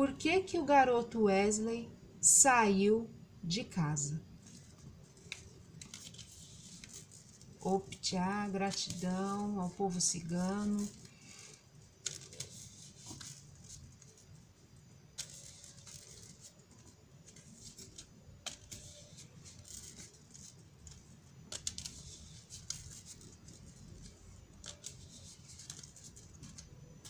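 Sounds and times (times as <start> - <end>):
cards sliding and flicking: 4.4 - 8.1, 10.8 - 14.2, 15.2 - 16.5, 17.3 - 26.7.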